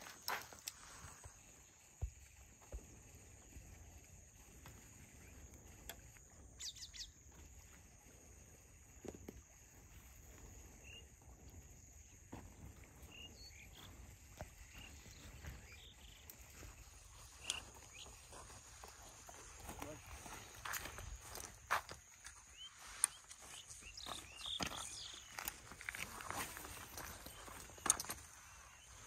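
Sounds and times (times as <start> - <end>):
faint bird chirps: 3.2 - 8.2, 10.5 - 11.2, 12.8 - 20.6, 22.3 - 29.0.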